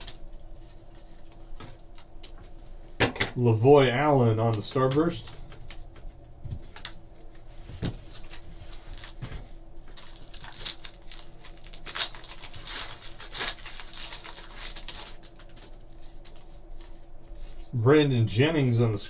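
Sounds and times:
cards rustling: 4.3 - 17.0
foil wrapper crinkling and tearing: 8.1 - 9.3, 9.9 - 16.4.

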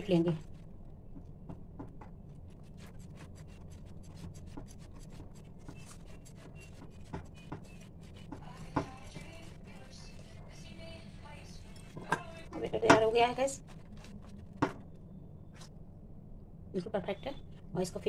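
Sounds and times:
low steady hum: 0.0 - 18.0
batter slapping in steel bowl: 2.7 - 10.5.

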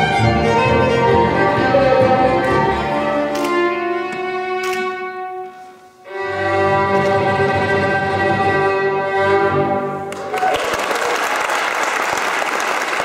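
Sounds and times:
bowed double bass: 0.0 - 5.0, 6.1 - 10.0
fiddle melody: 0.0 - 10.1.

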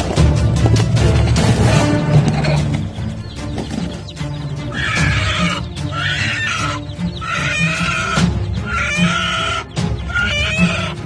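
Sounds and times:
background music: 0.0 - 11.0
hen squawking loudly: 4.6 - 11.0.

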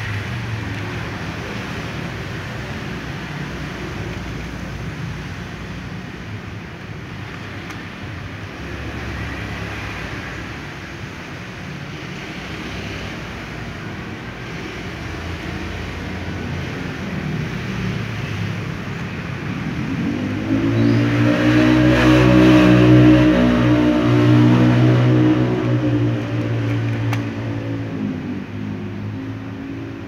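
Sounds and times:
vehicle engine humming: 13.3 - 30.0.

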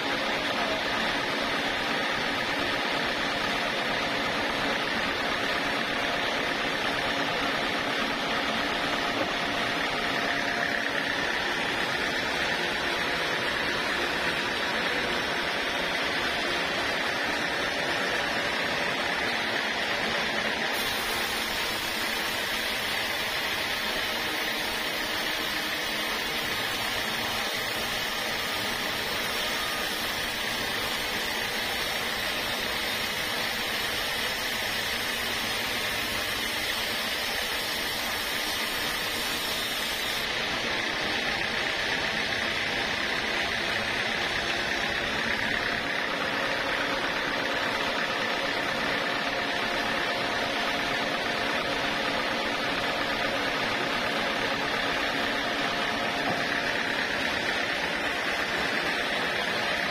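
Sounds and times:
high hiss: 20.8 - 40.3.

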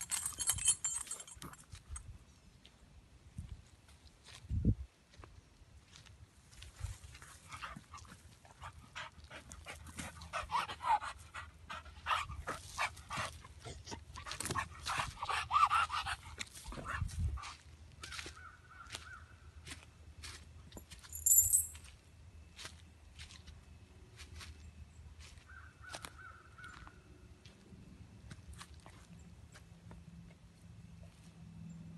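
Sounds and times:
chain links rattling: 0.0 - 2.0, 20.8 - 21.9.

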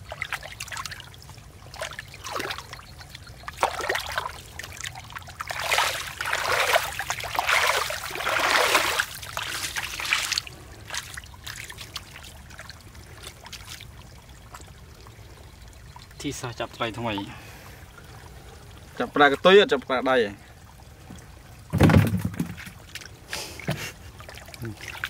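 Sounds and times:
hands splashing in muddy water: 3.5 - 13.9.

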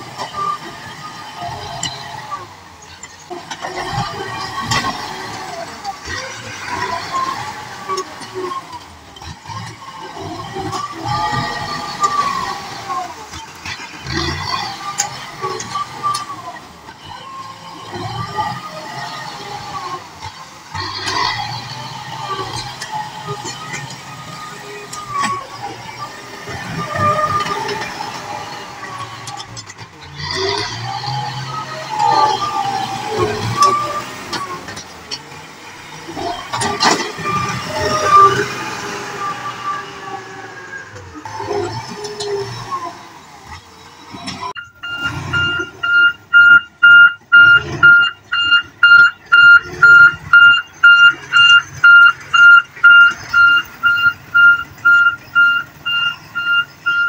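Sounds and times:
tractor diesel engine under load: 0.0 - 57.0
reversing alarm beeping: 44.5 - 57.0.

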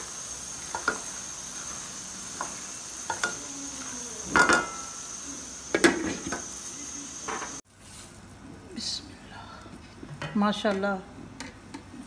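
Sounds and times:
spatula scraping a wok: 0.0 - 6.6
pan sizzling: 0.0 - 7.6.

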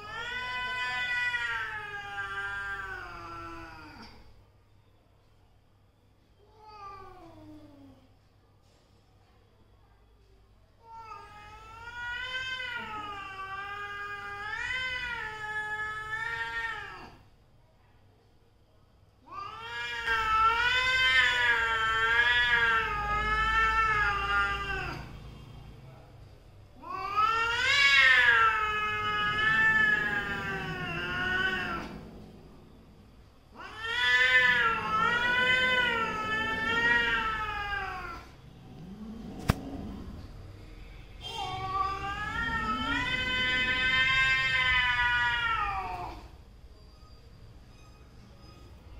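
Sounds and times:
cat yowling: 19.3 - 25.1, 26.8 - 32.1, 33.5 - 40.0, 41.2 - 46.3.

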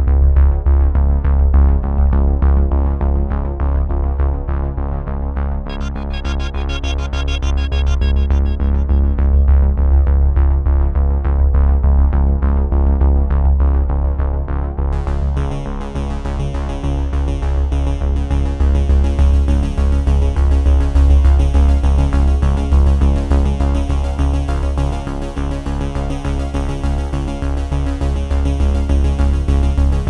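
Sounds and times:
electronic music: 5.7 - 10.2.

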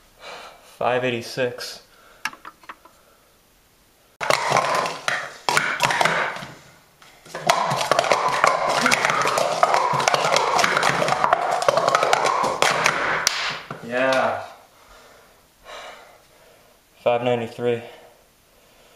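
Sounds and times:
plastic cups clattering: 4.2 - 13.8.

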